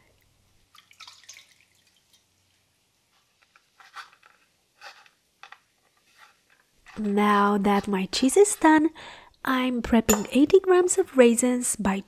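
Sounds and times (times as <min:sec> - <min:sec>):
liquid trickling and dripping: 0:00.6 - 0:02.7.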